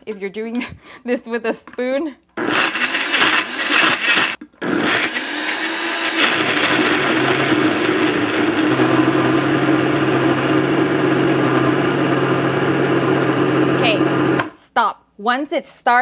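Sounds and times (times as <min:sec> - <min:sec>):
blender motor running: 0:02.4 - 0:14.6.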